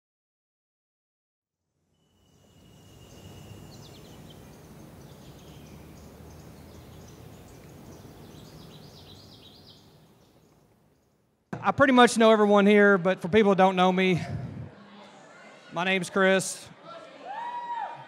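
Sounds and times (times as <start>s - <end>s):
thin high steady tone: 2.0s - 8.3s
small birds chirping: 2.1s - 11.3s.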